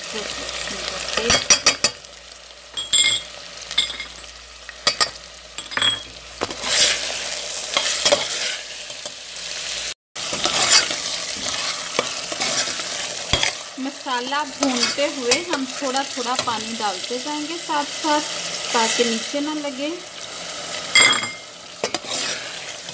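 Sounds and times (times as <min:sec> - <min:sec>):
food sizzling in oil: 0:00.0 - 0:22.9
spoon scraping and clinking in pot: 0:02.8 - 0:07.1, 0:07.7 - 0:09.1, 0:10.3 - 0:13.6, 0:14.6 - 0:15.6, 0:20.9 - 0:22.9.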